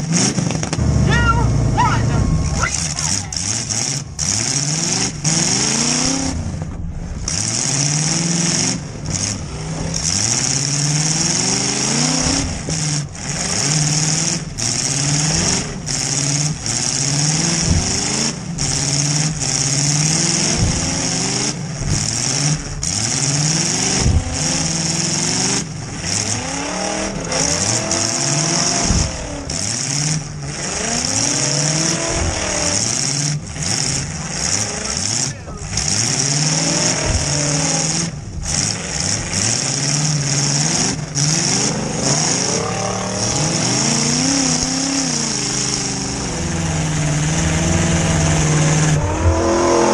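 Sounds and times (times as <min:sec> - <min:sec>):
car engine revving: 0:00.0 - 0:49.9
sharp knocks and bangs: 0:17.4 - 0:23.0, 0:23.8 - 0:24.8, 0:27.3 - 0:33.5, 0:35.5 - 0:38.7.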